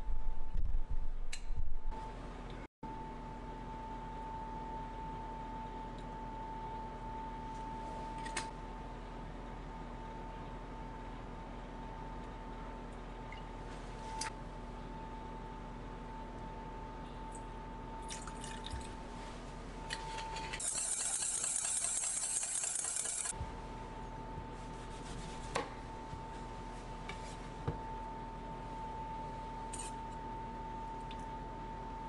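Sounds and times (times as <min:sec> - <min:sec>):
whisk clicking against metal bowl: 0:20.6 - 0:23.3.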